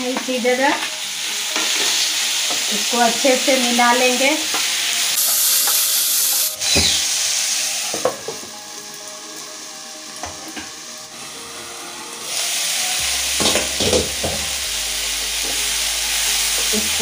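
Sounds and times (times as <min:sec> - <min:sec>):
vegetables sizzling in frying pan: 0:00.0 - 0:17.0
wooden spatula knocking on pan: 0:13.4 - 0:14.5.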